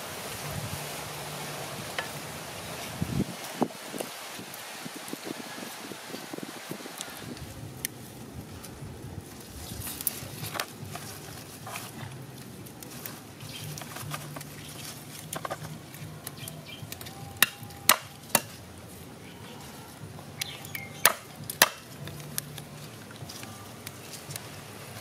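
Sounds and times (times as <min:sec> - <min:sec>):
knife chopping on wooden board: 0:21.0 - 0:21.8.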